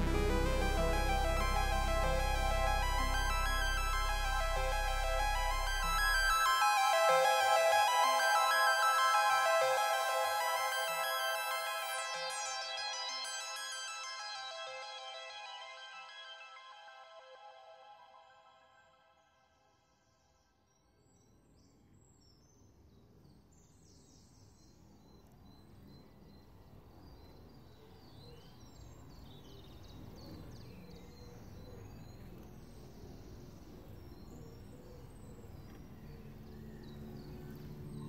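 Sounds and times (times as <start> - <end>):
faint low noise: 0.0 - 12.7
background music: 0.0 - 18.5.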